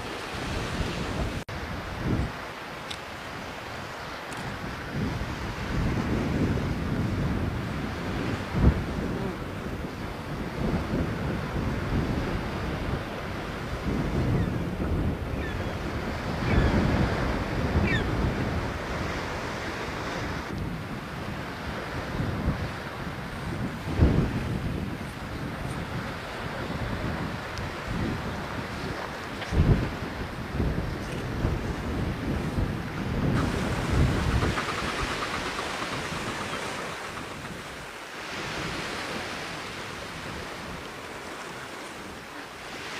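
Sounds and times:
surf: 0.0 - 42.9
wind: 0.0 - 42.9
wind buffeting microphone: 0.0 - 42.9.

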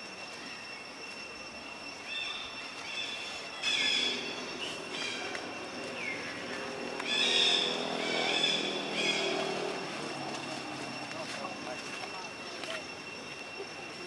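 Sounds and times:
monkeys squeaking and calling: 2.1 - 10.0.

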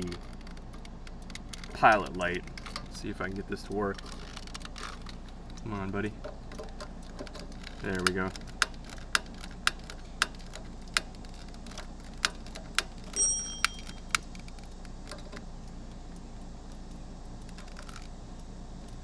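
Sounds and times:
high ringing tone: 13.2 - 14.1.

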